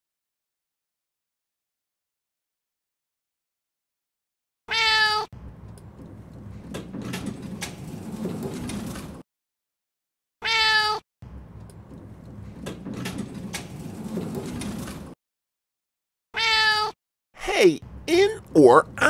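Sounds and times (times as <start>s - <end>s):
cat meowing: 4.7s - 5.3s, 10.4s - 11.0s, 16.4s - 17.0s
sliding glass door rumbling: 5.9s - 9.2s, 11.8s - 15.2s.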